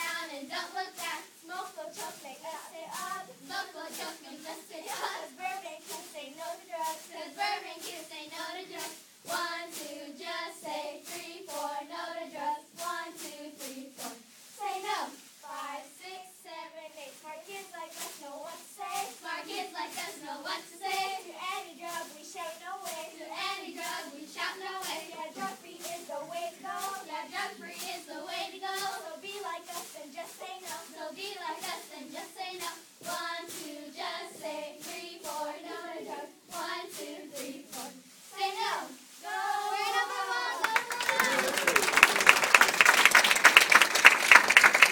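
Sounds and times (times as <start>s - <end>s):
rhythmic claps: 0.0s - 14.2s, 17.4s - 37.9s, 39.3s - 44.9s
girls chanting a cheer: 0.0s - 42.6s
sharp claps: 40.1s - 44.9s.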